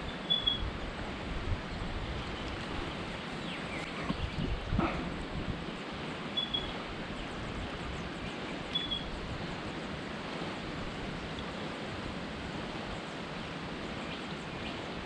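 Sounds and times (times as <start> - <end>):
creek water rushing: 0.0 - 15.0
high bird chirp: 0.1 - 0.6, 6.4 - 6.7, 8.7 - 9.1.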